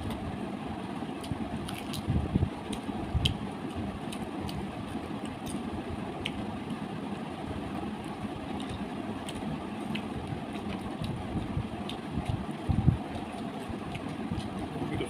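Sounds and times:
low background rumble: 0.0s - 15.0s
chewing clicks: 2.7s - 5.6s, 11.8s - 12.5s, 13.1s - 14.7s.

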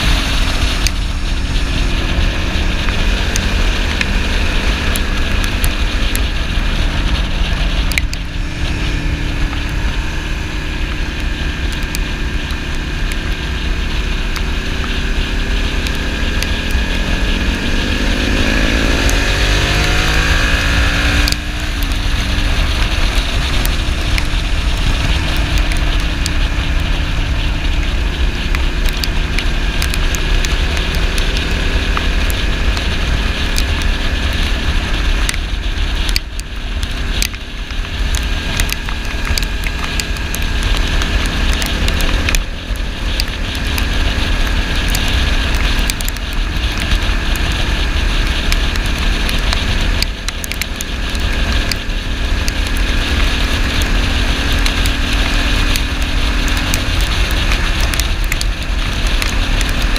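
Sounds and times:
motorcycle engine: 0.0s - 59.9s
wind rushing on microphone: 0.0s - 59.9s.

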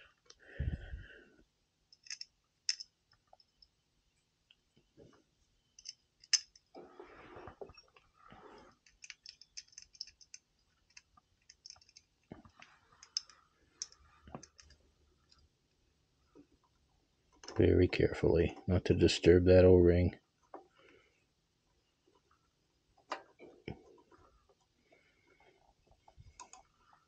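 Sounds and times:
faint metallic clicks: 8.7s - 15.5s.

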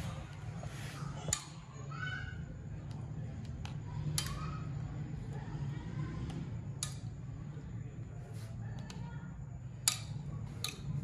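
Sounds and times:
steady low hum: 0.0s - 11.0s
metal spoon clicking on plastic cups: 6.2s - 7.2s, 9.7s - 11.0s.

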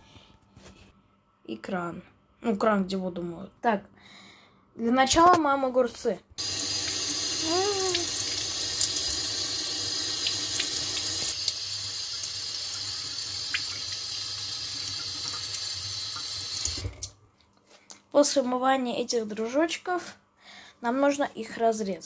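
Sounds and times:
tap water running into sink: 6.4s - 17.1s.

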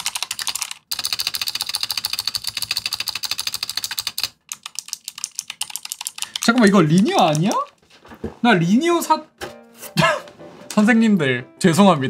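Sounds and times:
fast clicky keyboard typing: 0.0s - 7.8s.

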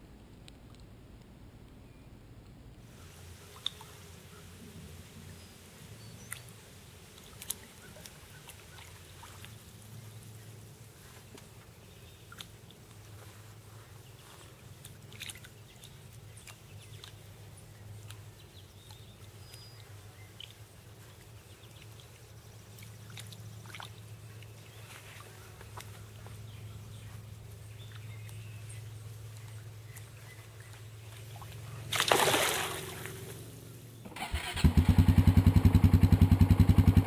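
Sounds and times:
fish splashing at water surface: 31.4s - 33.4s.

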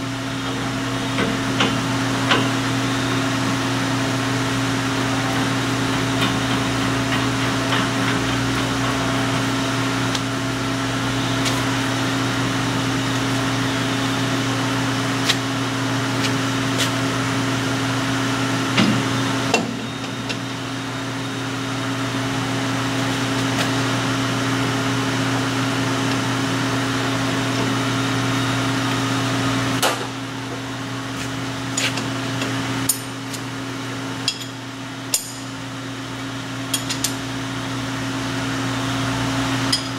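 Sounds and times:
electric machinery hum: 0.0s - 39.9s.

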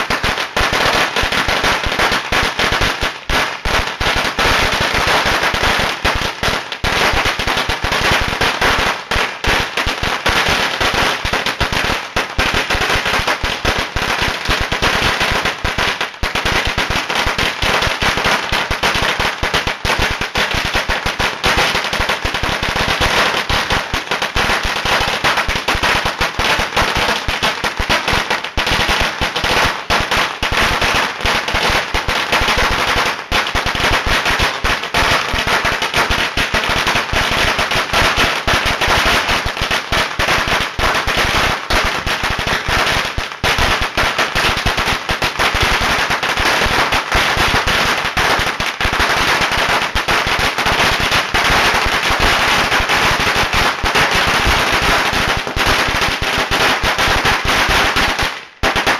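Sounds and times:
firecrackers crackling rapidly: 0.0s - 58.9s.

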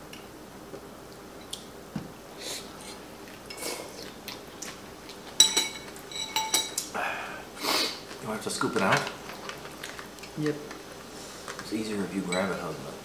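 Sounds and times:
people chewing and slurping: 2.4s - 6.1s
utensils clinking on dishes: 5.3s - 6.9s, 11.5s - 12.8s.

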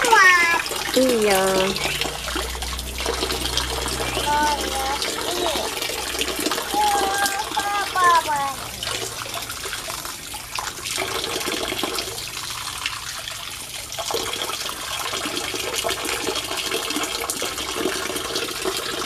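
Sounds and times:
water running into pool: 0.0s - 19.0s.

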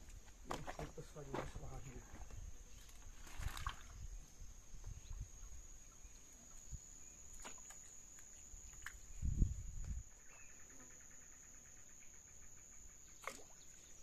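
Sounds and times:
insect trilling: 6.7s - 14.0s.

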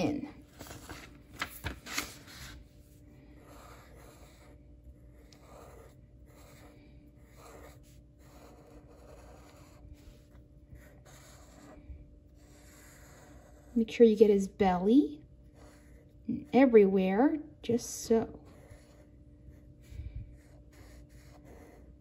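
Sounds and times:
marker scratching on paper: 3.4s - 13.9s, 15.4s - 16.7s, 18.2s - 22.0s.

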